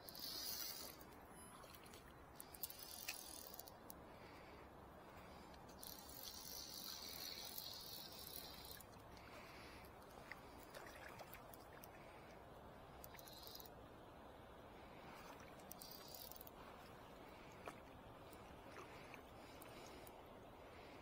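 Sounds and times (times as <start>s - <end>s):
fishing reel drag buzzing: 0.0s - 1.1s, 2.4s - 3.9s, 5.7s - 9.0s, 13.0s - 13.7s, 15.7s - 16.6s
reel clicks: 0.0s - 4.0s, 5.5s - 11.9s, 13.0s - 13.8s, 15.6s - 16.6s
faint river wash: 0.0s - 21.0s.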